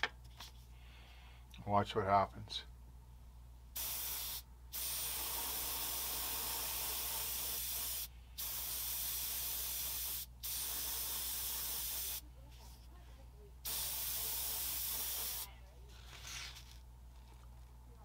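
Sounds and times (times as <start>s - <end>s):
airbrush spraying hiss: 3.8s - 12.2s, 13.6s - 15.5s.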